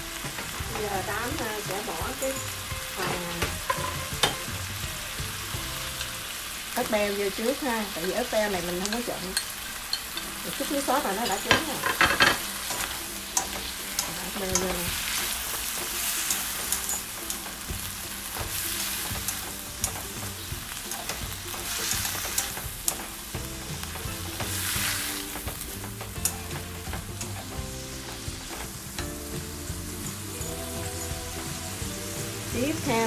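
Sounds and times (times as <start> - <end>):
food sizzling in a wok: 0.0 - 33.0
chopsticks clicking against pan: 8.0 - 17.7, 18.3 - 23.2, 25.3 - 29.2.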